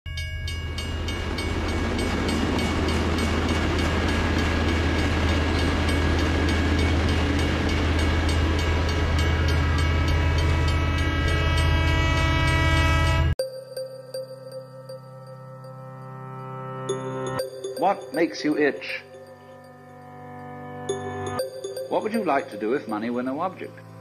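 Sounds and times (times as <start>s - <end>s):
freight train rolling past: 0.2s - 13.3s.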